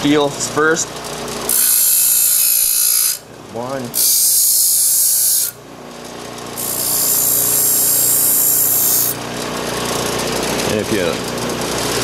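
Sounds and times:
grinder motor hum: 0:00.8 - 0:12.0
bench grinder grinding hiss: 0:01.1 - 0:03.2, 0:03.9 - 0:05.6, 0:06.6 - 0:09.2.

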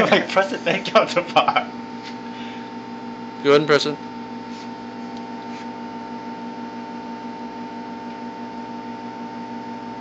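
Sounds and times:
electrical hum: 0:00.0 - 0:10.0.

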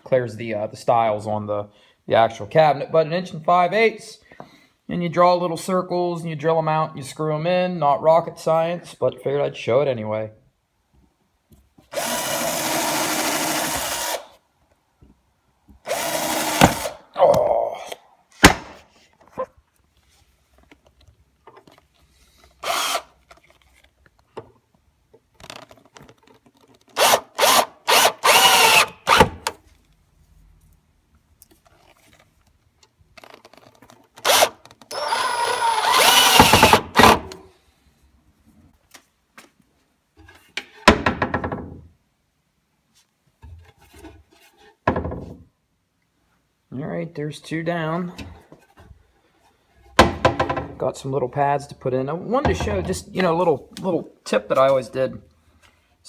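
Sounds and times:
cordless drill whirring: 0:11.9 - 0:14.4, 0:15.9 - 0:17.0, 0:22.6 - 0:23.2, 0:27.0 - 0:29.4, 0:34.2 - 0:37.2.

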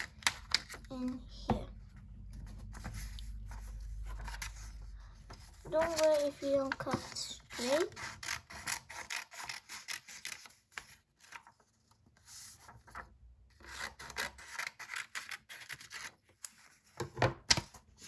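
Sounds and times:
paper rustling on wooden board: 0:02.4 - 0:13.1.

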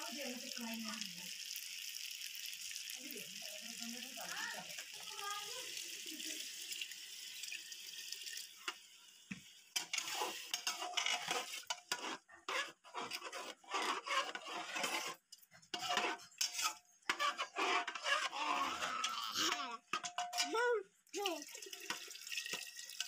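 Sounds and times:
water pouring into pot: 0:00.0 - 0:23.0
ladle stirring and scraping pot: 0:06.4 - 0:20.7, 0:21.7 - 0:23.0.

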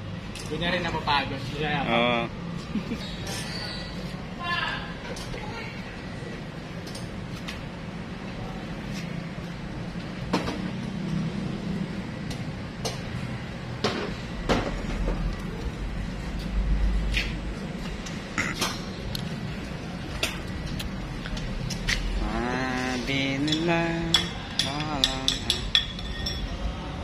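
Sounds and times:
tools and metal parts clinking: 0:00.3 - 0:00.9, 0:23.3 - 0:26.6
steady low hum: 0:05.8 - 0:27.0.

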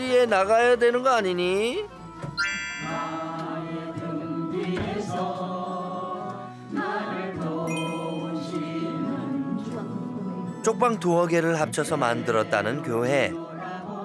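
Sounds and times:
slow hymn-like singing: 0:02.8 - 0:14.0.

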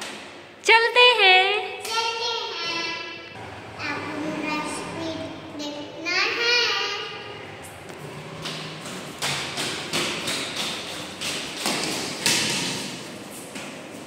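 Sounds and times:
roller skates rolling on tiles: 0:07.6 - 0:14.0.

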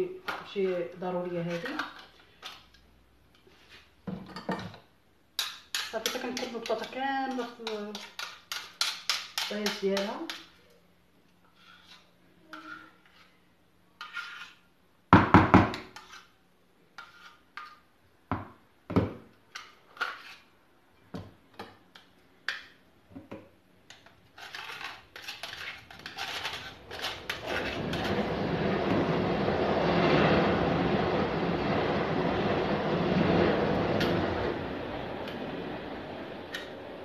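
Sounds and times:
passing train: 0:26.8 - 0:37.0.

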